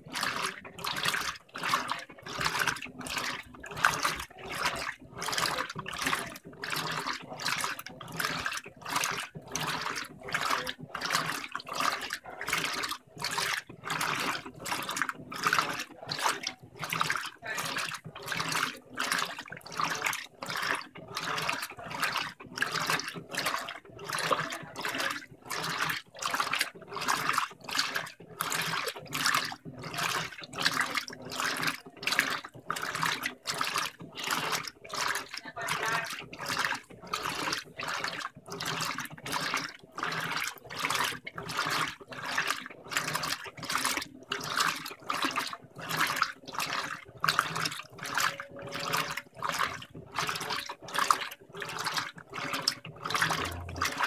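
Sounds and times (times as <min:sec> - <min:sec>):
washing machine water sloshing: 0:00.0 - 0:54.0
faint motor hum: 0:52.1 - 0:54.0.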